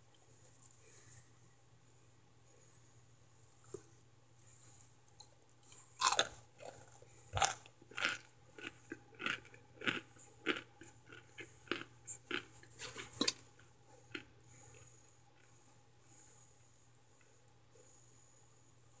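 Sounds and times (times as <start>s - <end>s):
crunching hard starch: 6.0s - 13.4s.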